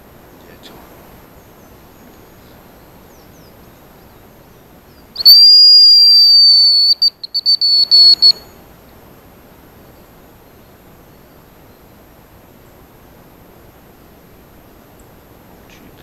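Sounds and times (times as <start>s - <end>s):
decoy whistle: 5.2s - 8.6s.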